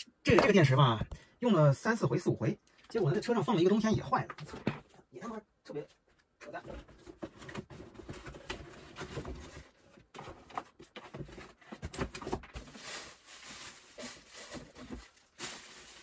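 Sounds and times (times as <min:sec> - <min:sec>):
small objects rustling and clattering: 0:07.6 - 0:16.0.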